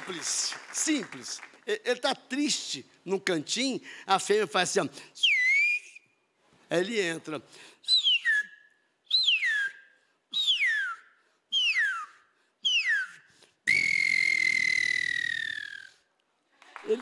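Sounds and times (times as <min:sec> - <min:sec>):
man whistling bird calls: 0:05.2 - 0:06.2, 0:07.8 - 0:16.1.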